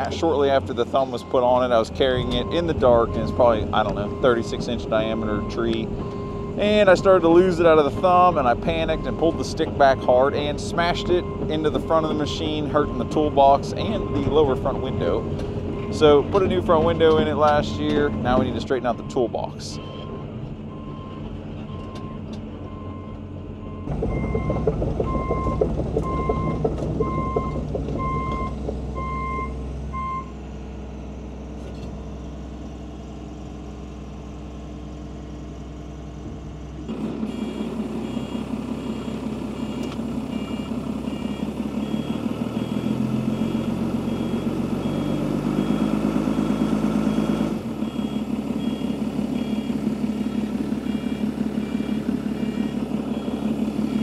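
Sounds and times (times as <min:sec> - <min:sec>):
diesel engine running: 0:00.0 - 0:54.0
travel alarm beeping: 0:02.2 - 0:10.2, 0:10.9 - 0:17.0, 0:17.8 - 0:30.3, 0:37.3 - 0:54.0
high-pitched backup alarm beeping: 0:17.7 - 0:30.3, 0:37.3 - 0:54.0.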